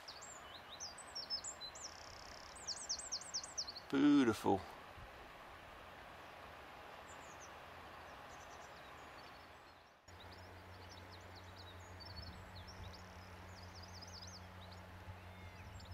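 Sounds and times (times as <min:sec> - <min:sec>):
birds chirping: 0:00.0 - 0:04.8, 0:06.0 - 0:15.9
low steady hum: 0:00.0 - 0:15.9.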